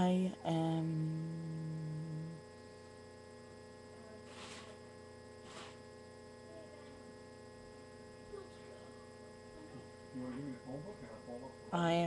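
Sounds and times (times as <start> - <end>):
faint electrical hum: 0.0 - 12.0
soft puffs of hiss: 4.2 - 4.8, 5.4 - 5.9.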